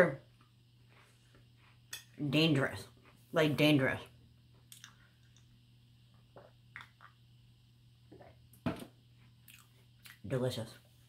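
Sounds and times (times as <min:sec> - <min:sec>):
person chewing: 0:00.4 - 0:02.2, 0:04.7 - 0:05.5, 0:09.2 - 0:10.2.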